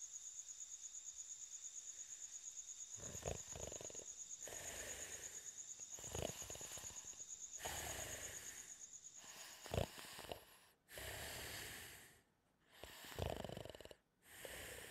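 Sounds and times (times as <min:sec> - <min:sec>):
cartoon snoring: 0:03.0 - 0:05.4, 0:06.0 - 0:14.9
sharp snort: 0:03.0 - 0:05.4, 0:06.0 - 0:12.2, 0:12.8 - 0:14.9.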